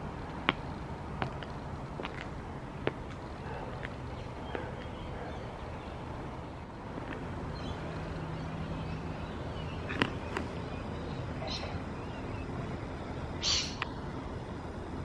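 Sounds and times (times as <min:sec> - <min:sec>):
distant traffic rumble: 0:00.0 - 0:15.0
faint hum: 0:00.0 - 0:15.0
faint bird chirps: 0:07.5 - 0:14.0.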